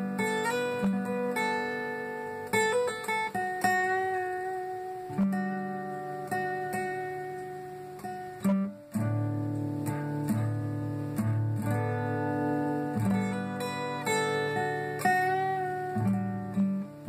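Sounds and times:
acoustic guitar chords: 0:00.0 - 0:17.0.

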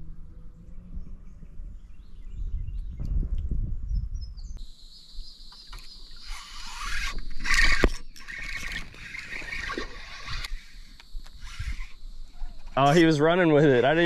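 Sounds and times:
low rumble: 0:00.0 - 0:04.5
faint bird chirps: 0:03.8 - 0:13.9
high insect drone: 0:04.6 - 0:14.0.

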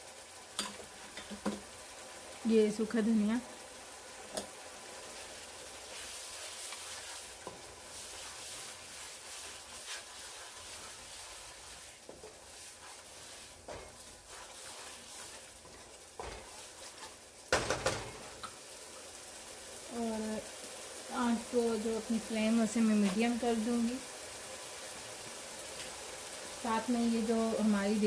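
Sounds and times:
masala sizzling in a pan: 0:00.0 - 0:28.0
wooden spatula stirring and scraping: 0:04.3 - 0:19.1, 0:21.2 - 0:24.6.

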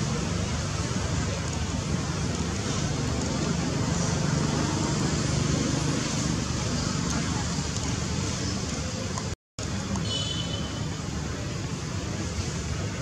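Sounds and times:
low outdoor rumble: 0:00.0 - 0:10.0.

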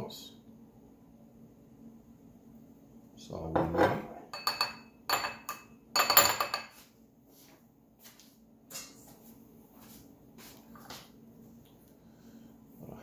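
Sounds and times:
kitchenware clinking and clattering: 0:03.5 - 0:06.8.

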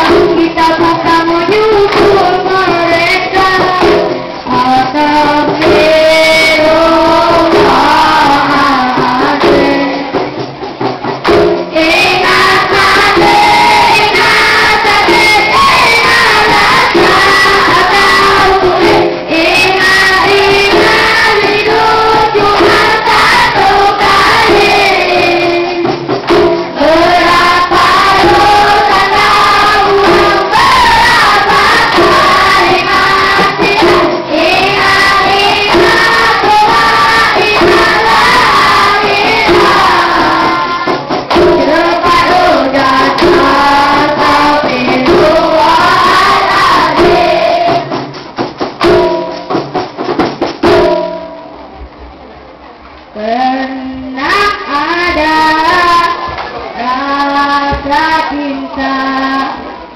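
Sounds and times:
children chanting in unison: 0:19.4 - 0:25.6, 0:26.8 - 0:47.8.

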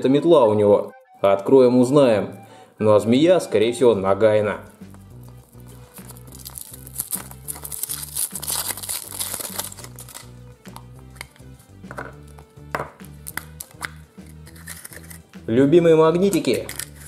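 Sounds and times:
background music with steady beat: 0:00.0 - 0:17.0
foil wrapper crinkling: 0:05.2 - 0:10.4
sharp clicks of chocolate shell: 0:13.0 - 0:15.2.

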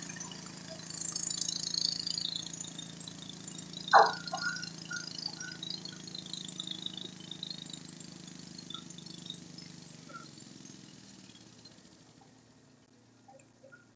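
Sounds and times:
tractor engine running: 0:00.0 - 0:13.9
faint high clinks: 0:03.1 - 0:13.9.

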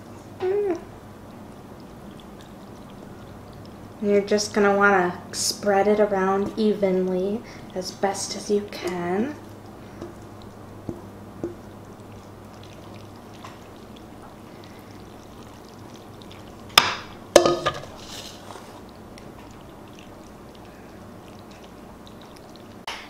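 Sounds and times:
low steady hum: 0:00.0 - 0:23.0
metal bowl clanking on stone: 0:17.4 - 0:17.9.

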